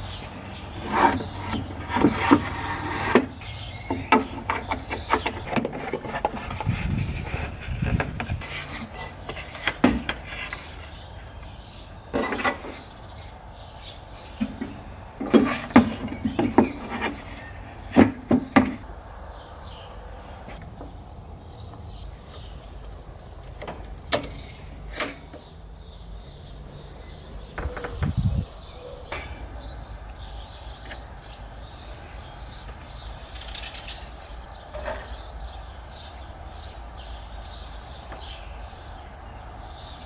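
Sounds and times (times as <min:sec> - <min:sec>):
wooden boards knocking and clattering: 0:00.9 - 0:06.8, 0:07.8 - 0:10.7, 0:14.4 - 0:18.8.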